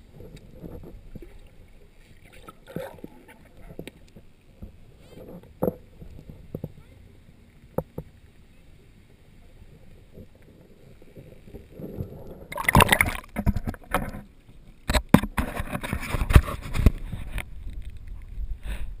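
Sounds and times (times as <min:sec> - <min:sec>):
water splashing and sloshing: 0:00.0 - 0:18.9
muffled underwater noise: 0:00.1 - 0:14.2.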